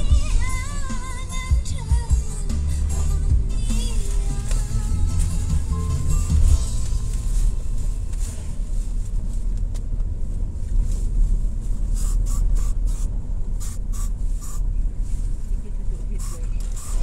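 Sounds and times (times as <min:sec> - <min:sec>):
car engine and tyre rumble: 0:00.0 - 0:17.0
short hissy bursts: 0:11.8 - 0:14.7.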